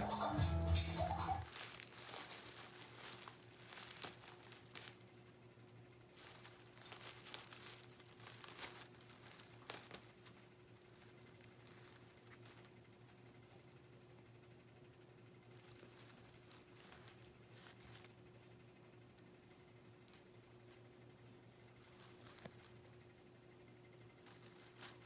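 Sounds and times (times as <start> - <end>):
packing paper crackling: 1.4 - 5.2, 6.1 - 13.7, 15.5 - 18.4, 21.7 - 23.1, 24.0 - 25.0.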